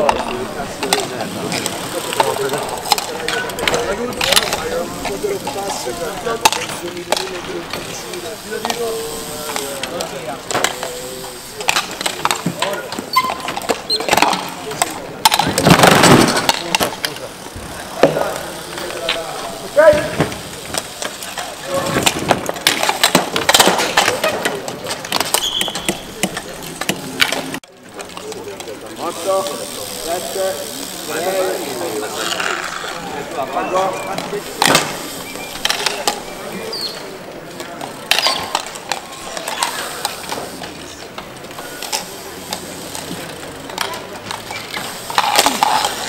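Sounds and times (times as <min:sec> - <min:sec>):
background hiss: 0:00.0 - 0:27.6.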